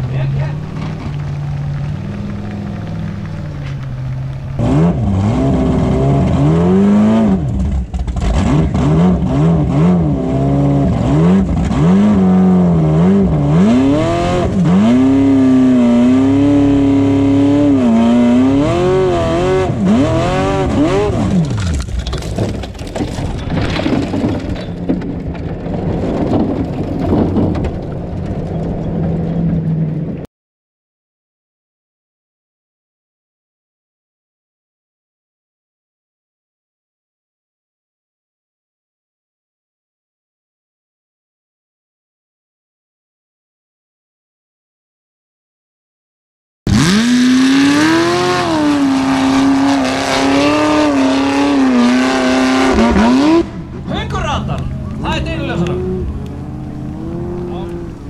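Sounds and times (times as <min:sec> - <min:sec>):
buggy engine revving: 0:00.0 - 0:30.2, 0:46.7 - 0:58.0.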